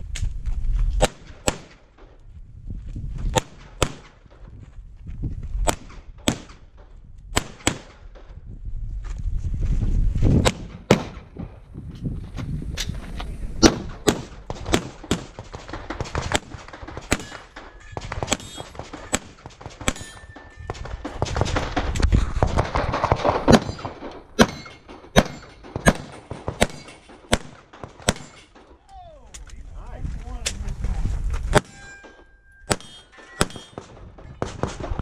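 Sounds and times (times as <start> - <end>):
handgun shots: 13.6 - 20.2, 22.6 - 28.6, 32.7 - 34.8.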